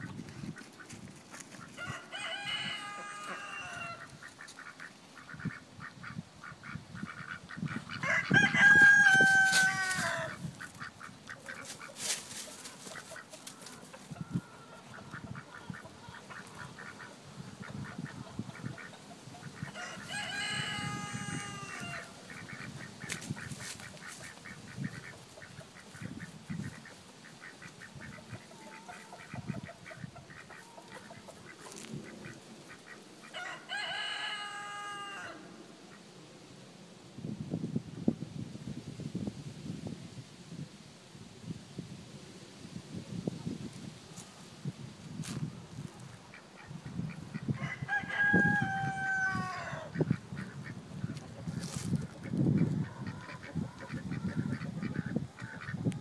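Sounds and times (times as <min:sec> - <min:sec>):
chicken clucking: 0:00.0 - 0:35.2, 0:45.3 - 0:56.0
rooster crowing: 0:01.8 - 0:04.1, 0:08.0 - 0:10.5, 0:19.7 - 0:22.2, 0:33.3 - 0:35.5, 0:47.5 - 0:50.0
small rustles: 0:09.2 - 0:14.1, 0:51.2 - 0:52.4.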